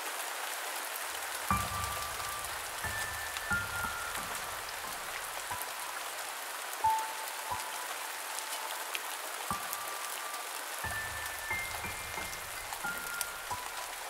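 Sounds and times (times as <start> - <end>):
steady rain hiss: 0.0 - 14.0
high held tones: 1.5 - 5.8, 9.5 - 14.0.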